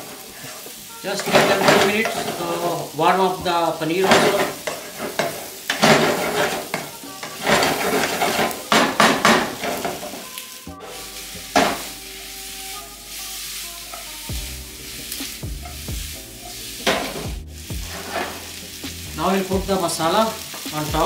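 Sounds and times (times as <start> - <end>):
wooden spatula scraping pan: 0.0 - 2.8, 4.0 - 12.0, 16.5 - 18.6
food frying sizzle: 0.0 - 21.0.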